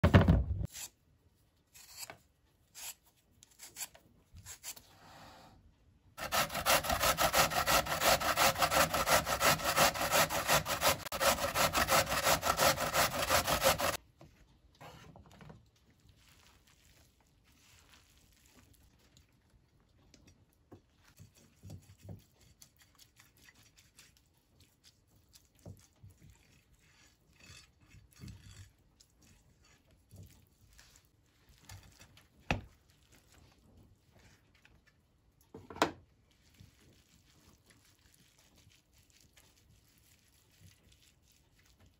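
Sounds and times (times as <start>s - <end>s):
potatoes grated on coarse grater: 6.2s - 14.0s.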